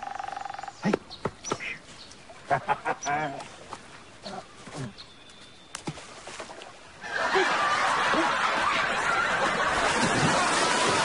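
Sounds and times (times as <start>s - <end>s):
audience laughter: 7.0s - 11.0s.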